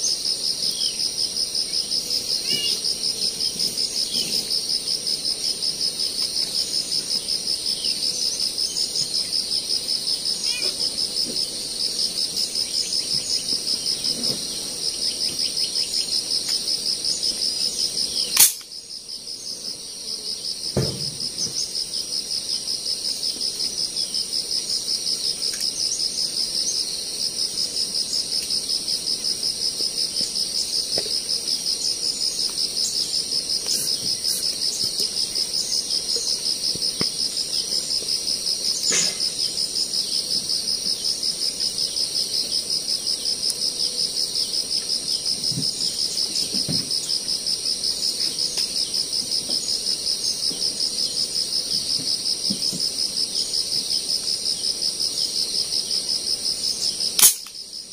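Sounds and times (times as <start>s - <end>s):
insects trilling: 0.0s - 57.9s.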